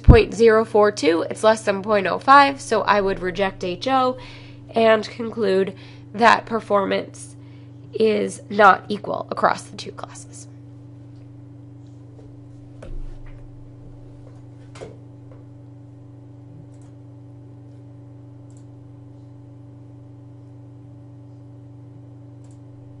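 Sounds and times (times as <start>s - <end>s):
low electrical hum: 0.0s - 23.0s
computer mouse clicks: 18.5s - 18.7s.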